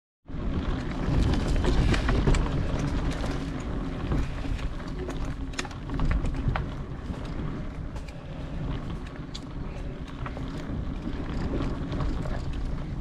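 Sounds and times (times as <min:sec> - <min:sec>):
wind rumbling on microphone: 0:00.3 - 0:13.0
clicks and rattles: 0:00.8 - 0:08.3.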